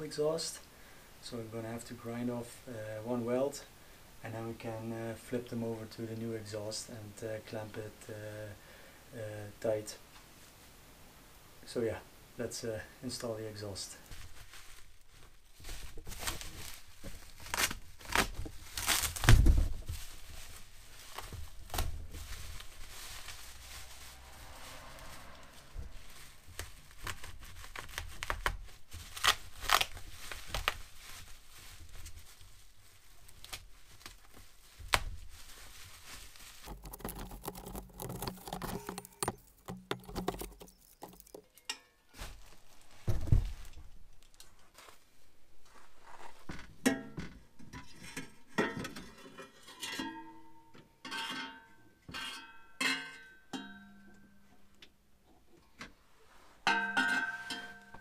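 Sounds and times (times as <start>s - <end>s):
bubble wrap crinkling: 14.1s - 41.6s, 42.2s - 45.0s.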